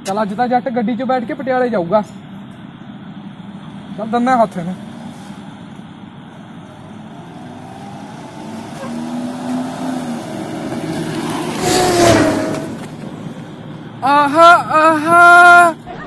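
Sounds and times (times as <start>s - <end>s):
car driving past: 4.8s - 14.0s.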